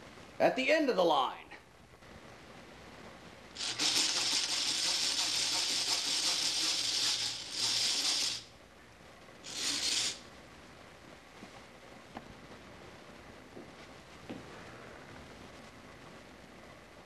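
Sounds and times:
hand drill gears rasping: 3.6s - 8.5s, 9.4s - 10.2s.

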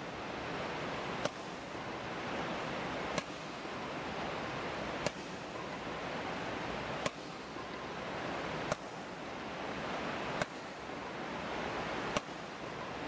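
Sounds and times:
steady rushing noise: 0.0s - 13.0s
racket smashing shuttlecock: 1.2s - 1.6s, 3.1s - 3.6s, 5.0s - 5.6s, 7.0s - 7.5s, 10.4s - 10.8s, 12.1s - 12.5s.

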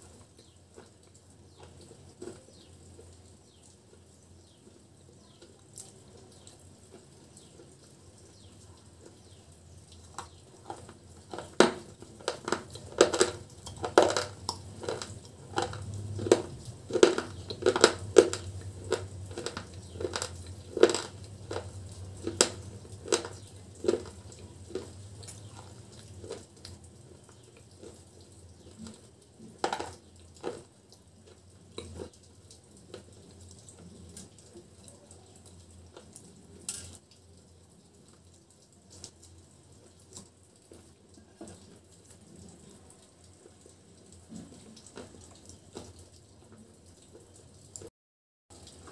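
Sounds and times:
crunching and chewing chip: 0.0s - 3.2s, 10.1s - 32.2s, 44.3s - 46.5s.

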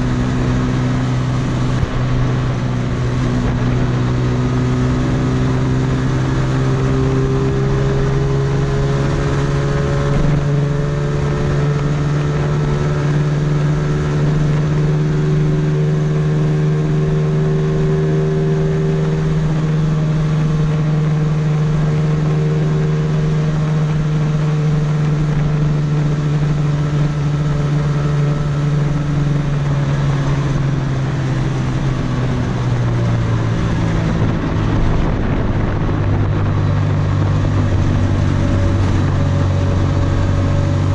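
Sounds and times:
drone propellers whining: 16.5s - 40.9s
rushing air: 19.1s - 40.9s.

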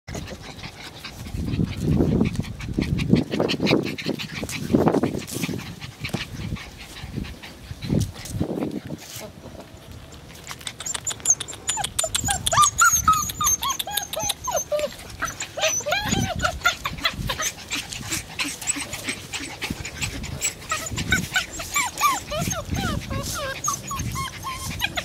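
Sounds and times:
clicks and rustles: 8.0s - 12.7s
puppies whining and yipping: 10.2s - 25.0s.

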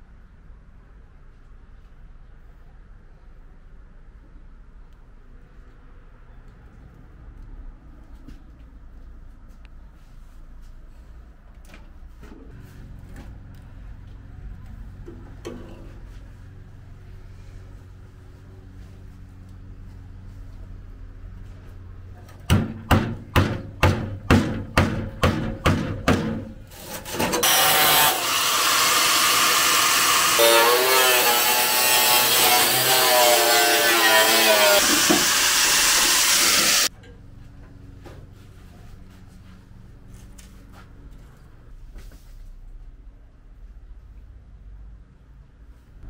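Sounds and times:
hand tool rasping strokes: 26.7s - 36.9s
power tool running: 26.7s - 36.9s.

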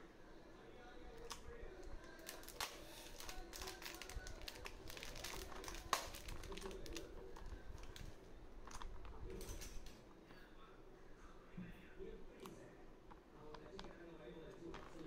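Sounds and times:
food packaging crinkling: 1.1s - 9.9s.

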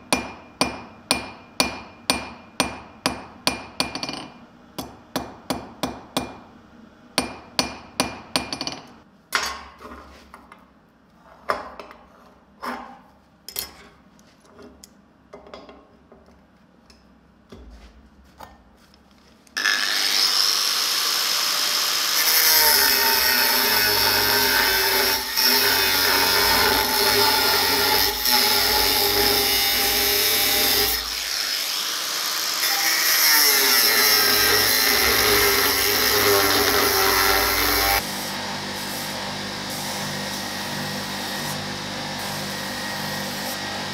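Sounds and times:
hammer striking steel on anvil: 0.0s - 6.5s, 7.2s - 9.7s
angle grinder cutting metal: 19.6s - 43.9s.

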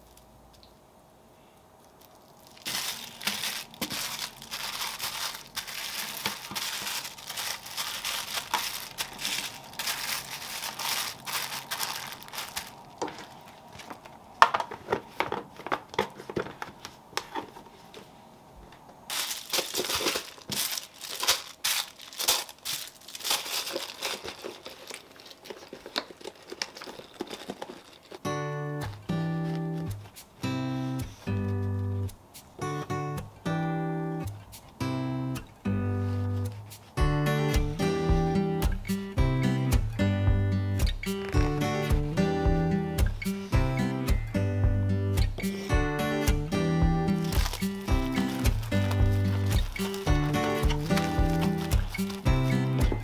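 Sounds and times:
wrapping material crinkling: 1.7s - 17.9s, 19.1s - 30.3s, 41.0s - 42.0s, 47.1s - 53.0s.

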